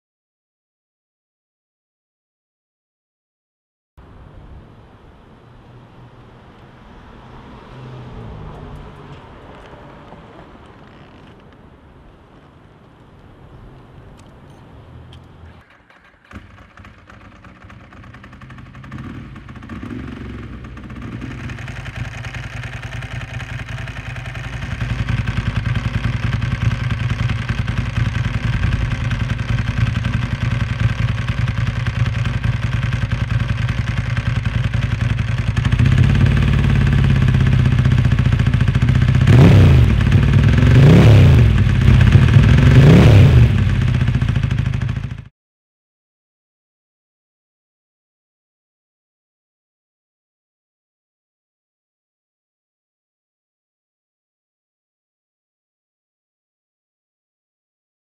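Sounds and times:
motorcycle engine idling and revving: 0:06.2 - 0:11.5, 0:14.2 - 0:45.3.

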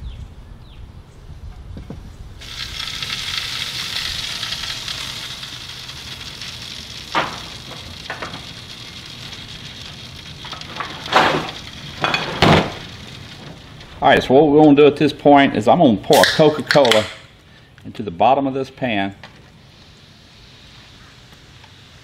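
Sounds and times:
fat sizzling on hot charcoal: 0:02.4 - 0:14.3, 0:19.5 - 0:22.0
foil pan crinkling and clanking: 0:10.4 - 0:13.9.

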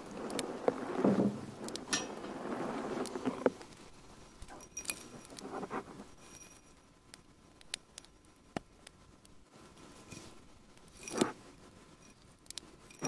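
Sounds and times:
fingers rustling: 0:00.0 - 0:09.1.

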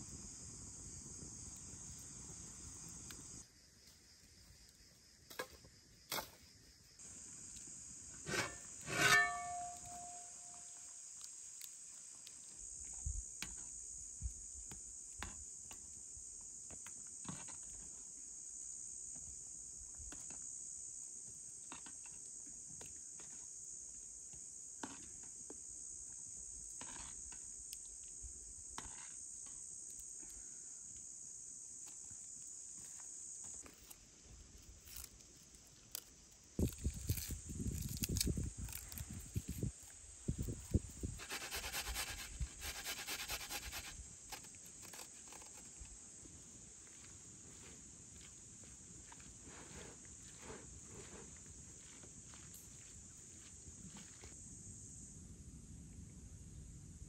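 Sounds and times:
insects chirring: 0:00.0 - 0:57.0
ringing clink: 0:08.9 - 0:10.6.

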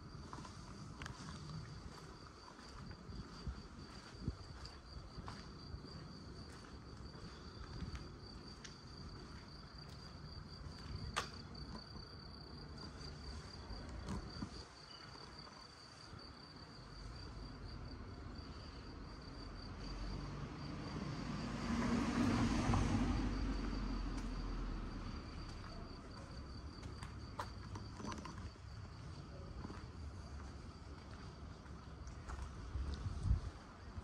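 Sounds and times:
cricket trilling: 0:07.0 - 0:21.4, 0:22.1 - 0:30.6.

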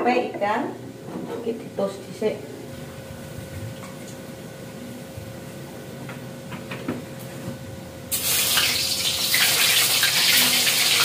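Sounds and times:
food frying in hot oil: 0:08.1 - 0:11.0.

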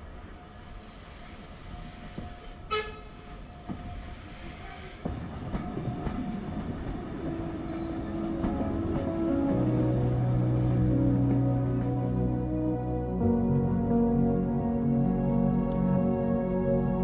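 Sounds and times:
steam train rolling: 0:00.0 - 0:12.4
steam whistle toot: 0:02.7 - 0:03.2
music: 0:07.2 - 0:17.0.

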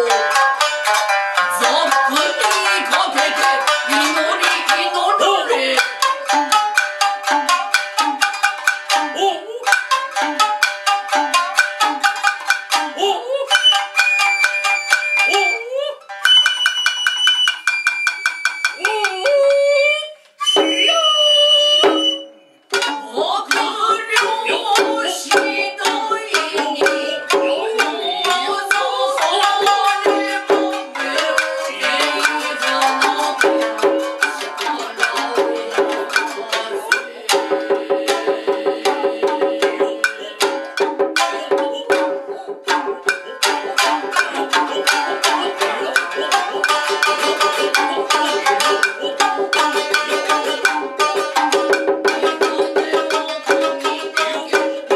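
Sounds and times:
plucked shamisen: 0:00.0 - 0:54.9
stick drum beats: 0:00.0 - 0:54.9
hand drum strokes: 0:21.8 - 0:54.9.

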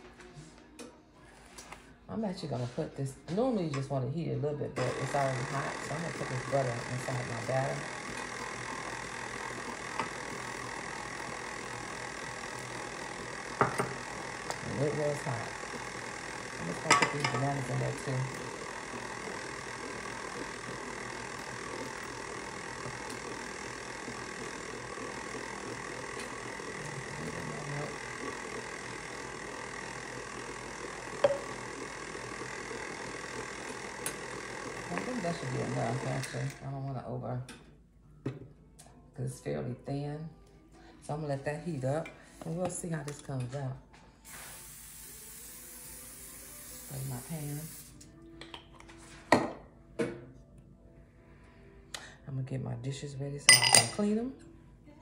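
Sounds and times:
clink against metal bowl: 0:53.5 - 0:54.0.

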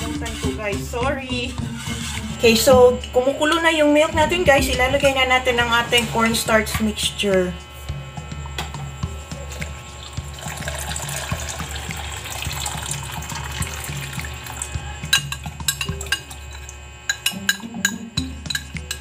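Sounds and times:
liquid pouring into pot: 0:10.0 - 0:17.2
spoon clinking on bowl: 0:15.0 - 0:19.0.

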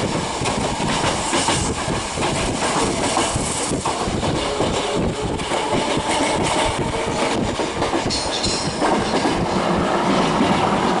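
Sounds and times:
train wheels clattering over rails: 0:00.0 - 0:11.0
high-pitched train squeal: 0:08.0 - 0:09.9.

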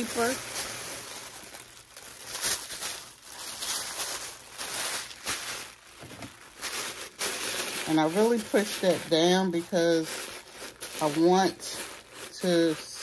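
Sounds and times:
tissue paper rustling: 0:00.0 - 0:13.0.

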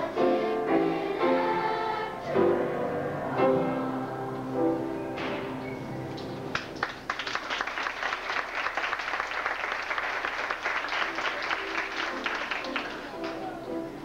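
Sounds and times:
children's choir singing: 0:00.0 - 0:06.1
audience applause: 0:06.5 - 0:13.7.

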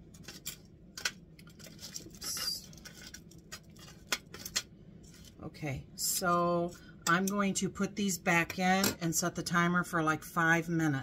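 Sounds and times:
metal tongs clicking and scraping on foil: 0:00.1 - 0:05.3.

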